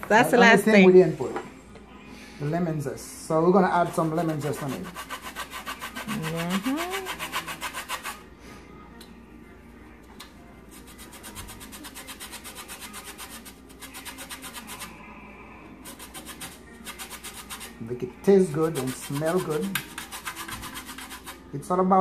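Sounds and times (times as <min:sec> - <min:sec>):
grater rasping scrapes: 0:03.8 - 0:08.2, 0:10.8 - 0:14.9, 0:15.8 - 0:17.8, 0:18.7 - 0:21.4.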